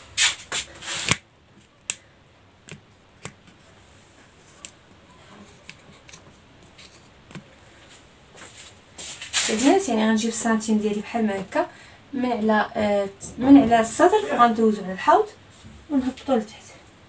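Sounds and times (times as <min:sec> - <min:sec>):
phone handling clicks and taps: 0:02.7 - 0:03.6, 0:07.3 - 0:07.5.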